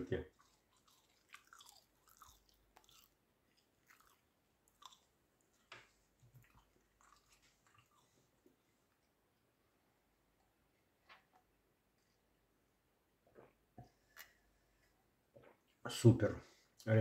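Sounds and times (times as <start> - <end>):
quiet chewing: 0.2 - 9.2, 13.3 - 15.8.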